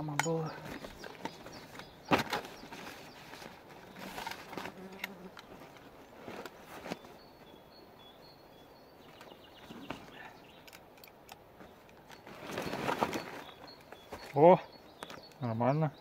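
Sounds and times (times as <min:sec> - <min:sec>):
plastic bag rustling: 0:00.5 - 0:07.2, 0:12.2 - 0:14.2
faint bird chirps: 0:06.4 - 0:10.8, 0:11.6 - 0:16.0.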